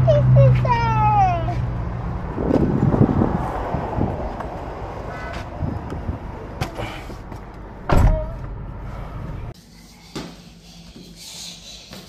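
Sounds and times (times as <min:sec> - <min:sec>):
road traffic rumble: 0:00.0 - 0:09.6.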